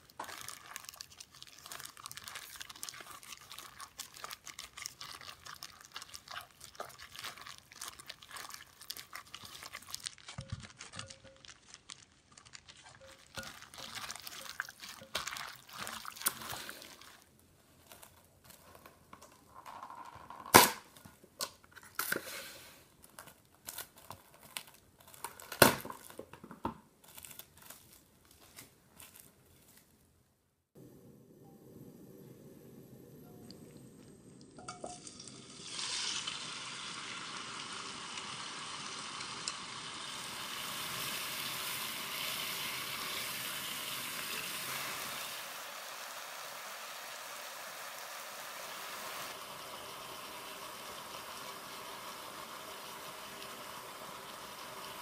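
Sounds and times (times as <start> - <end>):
gloved hand squishing wet meat: 0.0 - 18.6, 27.0 - 30.0
plastic glove crinkle: 0.0 - 19.6, 20.5 - 30.3
cling wrap tearing and snapping: 23.0 - 26.2, 27.0 - 29.9.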